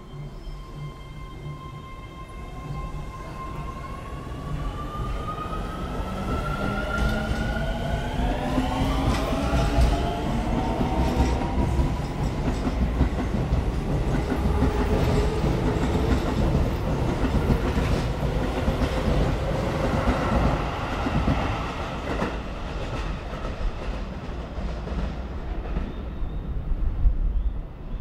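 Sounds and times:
train wheels clacking on rails: 0:08.3 - 0:26.0.

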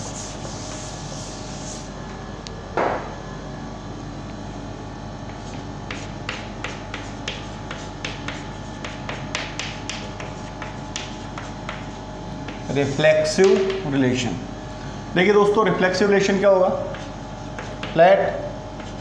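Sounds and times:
chalk tapping and scraping: 0:00.0 - 0:01.9, 0:05.3 - 0:13.8, 0:16.8 - 0:18.0, 0:18.8 - 0:19.0
electrical hum: 0:00.0 - 0:19.0.

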